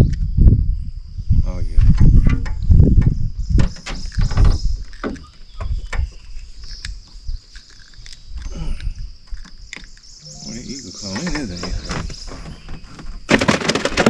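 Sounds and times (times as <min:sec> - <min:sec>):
high-pitched hum: 0:10.2 - 0:12.2.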